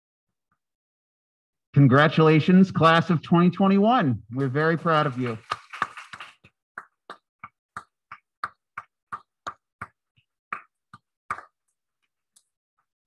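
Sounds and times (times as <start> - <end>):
person clapping: 4.4 - 11.6.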